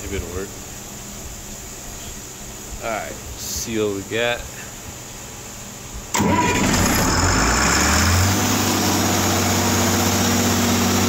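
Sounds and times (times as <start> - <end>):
diesel engine starting and idling: 6.1 - 11.0.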